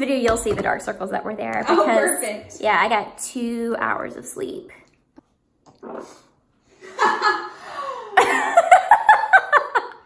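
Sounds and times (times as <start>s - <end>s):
woman laughing hard: 6.8s - 10.0s.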